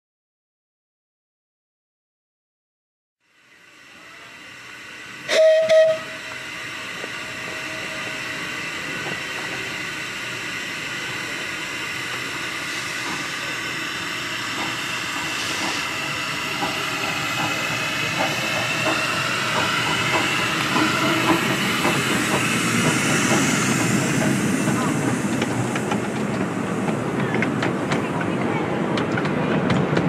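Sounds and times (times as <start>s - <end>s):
steam locomotive hissing: 3.3s - 30.0s
wheels clicking over rail joints: 24.2s - 30.0s.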